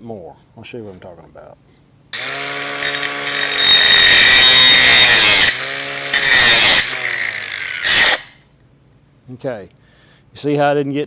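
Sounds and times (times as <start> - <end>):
grinder whining and grinding metal: 2.2 - 8.4.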